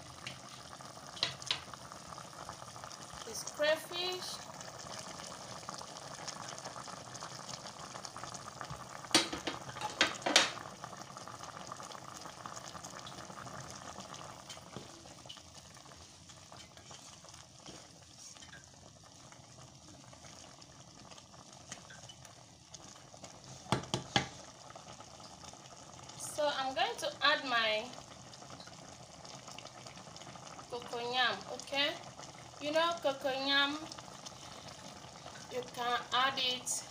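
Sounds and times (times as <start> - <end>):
soup simmering in a pan: 0.0 - 36.9
spoon knocking against pan: 9.1 - 10.6, 23.7 - 24.3.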